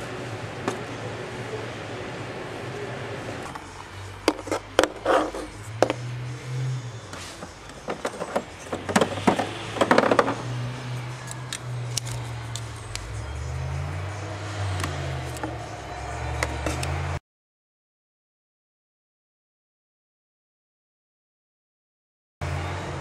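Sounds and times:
background music with bass: 0:03.4 - 0:17.2
plastic parts clicking and clattering: 0:07.7 - 0:10.4.

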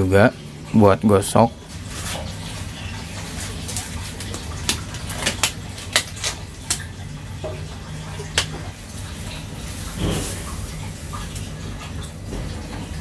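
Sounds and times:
rubber gloves snapping and crinkling: 0:03.6 - 0:06.8.

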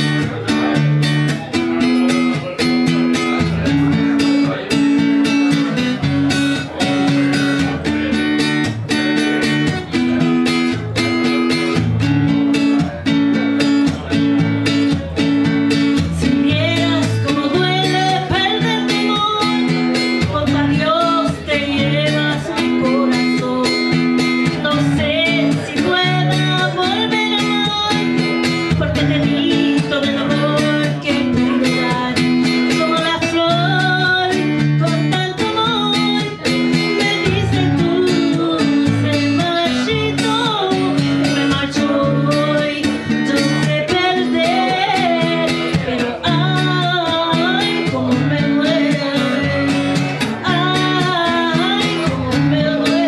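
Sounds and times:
acoustic guitar strumming: 0:00.0 - 0:53.0
woman singing: 0:16.0 - 0:53.0.

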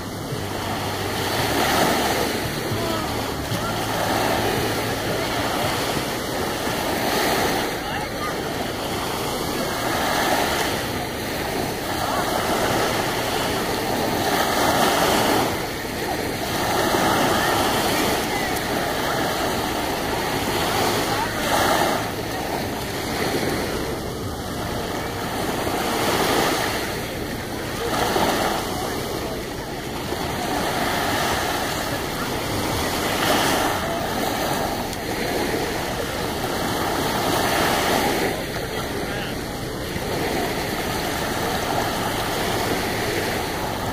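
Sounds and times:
small waves breaking on shore: 0:00.0 - 0:43.9.

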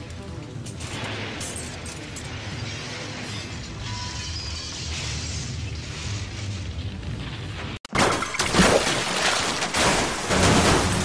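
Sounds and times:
film soundtrack music: 0:00.0 - 0:07.8
van crashing and scraping: 0:08.0 - 0:11.0.

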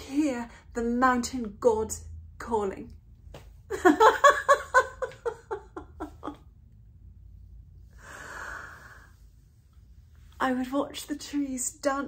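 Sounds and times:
woman laughing: 0:03.7 - 0:06.5
soft breathy sound: 0:07.8 - 0:10.4.

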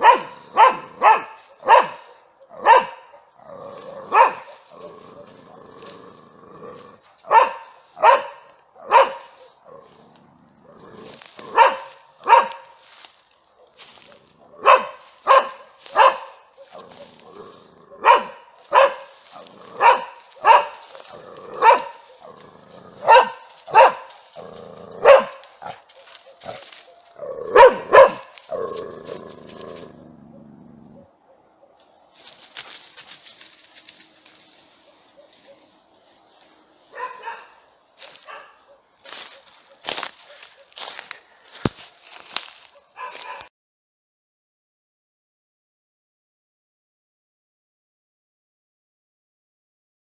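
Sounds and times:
dog barking: 0:00.0 - 0:05.9, 0:07.2 - 0:10.0, 0:10.6 - 0:28.7, 0:29.7 - 0:31.8, 0:34.8 - 0:35.8, 0:36.9 - 0:43.5.

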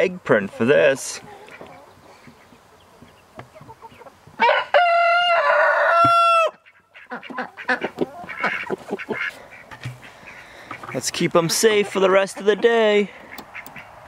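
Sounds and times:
rooster crowing: 0:04.4 - 0:06.6.

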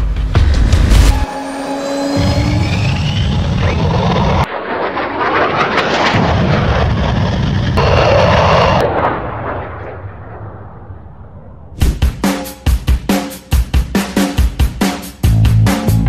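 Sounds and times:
jet roar: 0:00.9 - 0:12.3
booming hits: 0:05.4 - 0:12.4
drum beat: 0:11.8 - 0:16.0.

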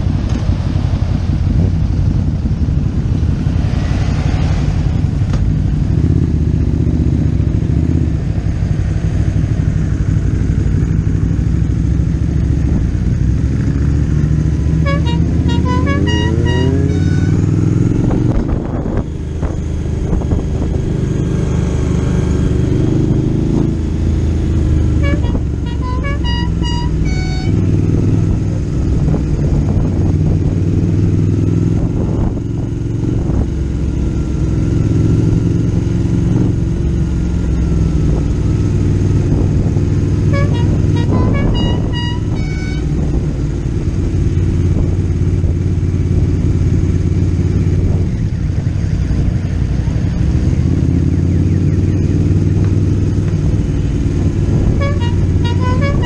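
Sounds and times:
motorcycle engines running: 0:00.0 - 0:56.0
short horn toots: 0:14.8 - 0:17.6, 0:25.0 - 0:27.7, 0:40.2 - 0:43.1, 0:54.7 - 0:56.0.

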